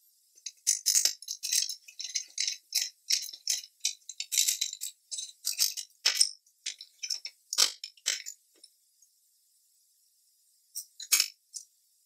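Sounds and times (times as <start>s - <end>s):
metal scraping and clinking in vise: 0.4s - 8.4s.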